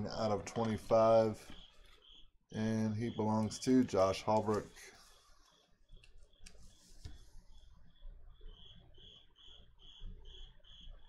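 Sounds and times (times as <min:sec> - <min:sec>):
cricket chirping: 0:00.2 - 0:11.0.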